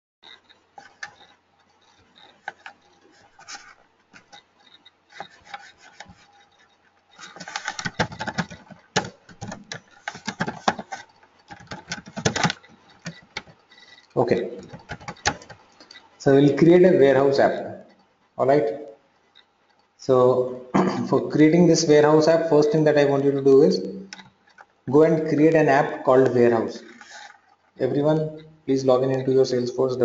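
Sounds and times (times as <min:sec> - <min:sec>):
typing on computer keyboard: 0:00.2 - 0:16.1.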